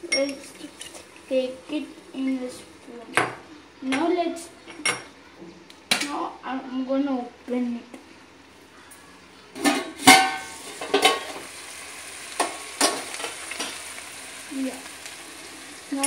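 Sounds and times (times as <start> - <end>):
vegetables sizzling in pot: 0.0 - 4.6, 7.4 - 16.0
metal pot lid clanking: 9.6 - 11.4.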